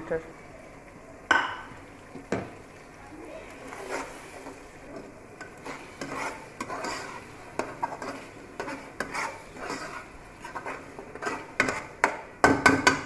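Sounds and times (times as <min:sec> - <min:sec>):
metal spoon scraping a pot: 0:03.7 - 0:04.6, 0:05.4 - 0:12.3.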